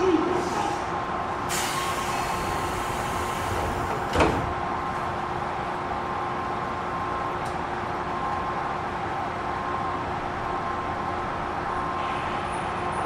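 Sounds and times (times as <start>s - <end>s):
train equipment hum: 1.1s - 12.8s
compressed air hiss: 1.5s - 3.9s
train doors thumping shut: 1.5s - 4.7s.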